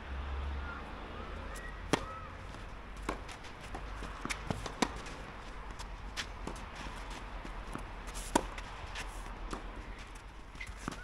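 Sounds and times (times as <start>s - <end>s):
tennis ball struck by rackets: 1.5s - 5.3s, 7.7s - 8.7s
tennis ball bouncing on court: 1.5s - 11.0s.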